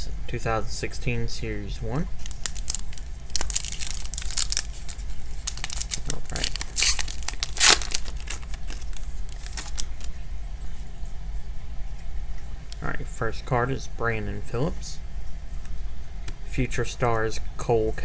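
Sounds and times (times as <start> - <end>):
plastic wrapper ripping and crinkling: 2.2 - 10.2.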